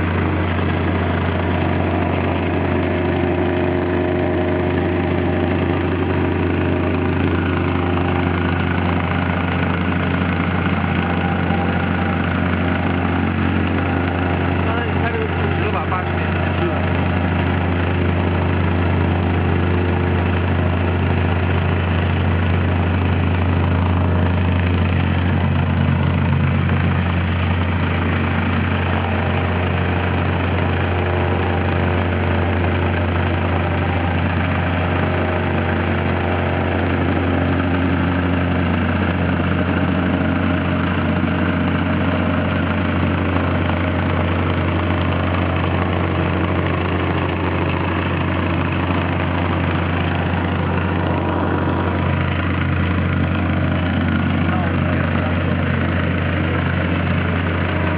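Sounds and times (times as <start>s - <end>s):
plate compactor engine drone: 0.0s - 57.9s.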